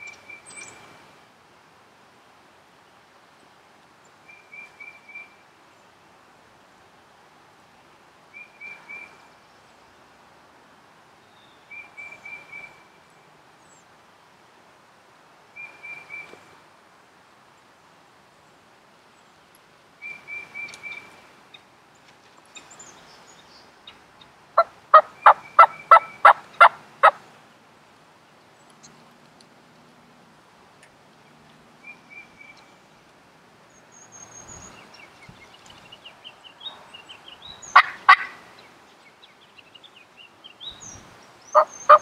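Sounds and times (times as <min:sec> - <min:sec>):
wild turkeys calling: 0:23.8 - 0:27.2, 0:37.6 - 0:38.6, 0:41.5 - 0:42.0.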